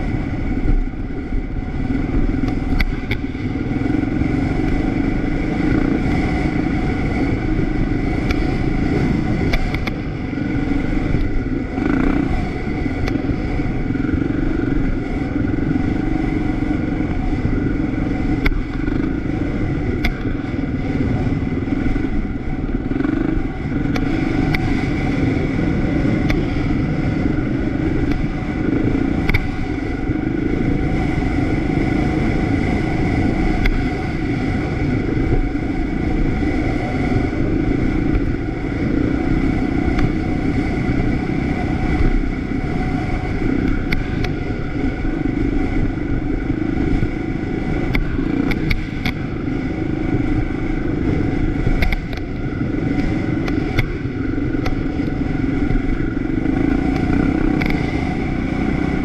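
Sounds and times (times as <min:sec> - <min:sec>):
vehicle engine rumbling: 0:00.0 - 0:59.0.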